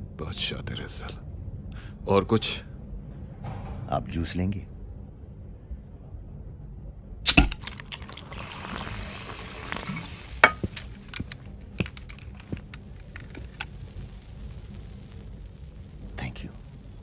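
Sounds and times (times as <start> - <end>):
soft hiss: 7.9 - 17.0
sharp clicks and light rattles: 10.8 - 13.8.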